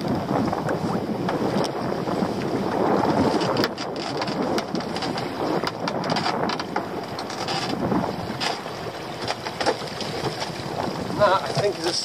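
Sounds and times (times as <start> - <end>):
lapping sea water: 0.0 - 12.0
wind buffeting microphone: 0.0 - 12.0
knocks and splashes of lobster pot: 9.2 - 10.7.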